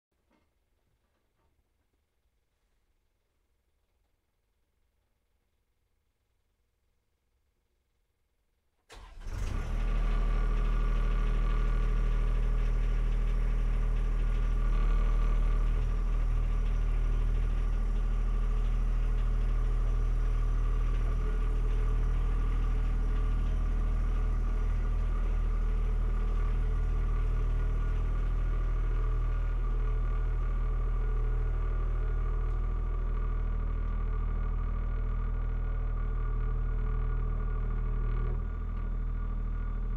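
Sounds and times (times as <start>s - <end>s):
tractor diesel engine running: 8.9s - 39.9s.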